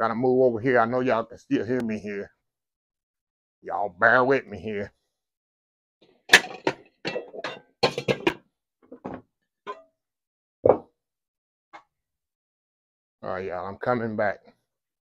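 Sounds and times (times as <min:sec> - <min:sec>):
pots and pans clinking: 0:06.3 - 0:08.4.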